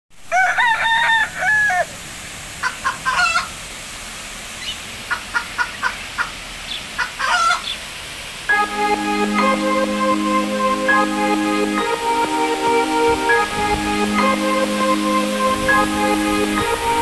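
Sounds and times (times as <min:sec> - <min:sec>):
rooster crowing: 0:00.3 - 0:02.0
waterfall rushing: 0:02.0 - 0:17.0.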